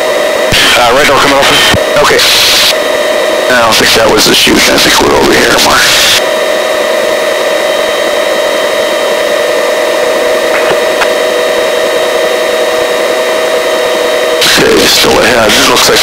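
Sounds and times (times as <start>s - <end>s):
helicopter cabin whine: 0.0s - 16.0s.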